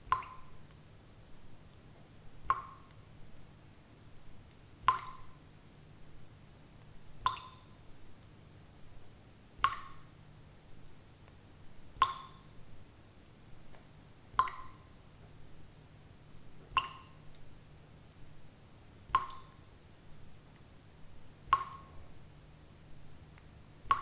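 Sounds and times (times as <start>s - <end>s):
water droplets dripping: 0.0s - 1.0s, 2.4s - 3.1s, 4.4s - 5.9s, 6.8s - 8.4s, 9.6s - 10.6s, 11.2s - 12.6s, 13.2s - 15.3s, 16.6s - 18.3s, 19.0s - 19.7s, 21.4s - 22.2s, 23.3s - 24.0s.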